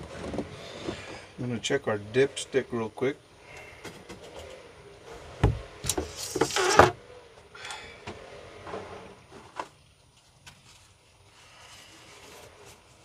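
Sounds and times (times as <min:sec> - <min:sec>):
scraping rustle: 0:05.8 - 0:07.0, 0:08.1 - 0:13.0.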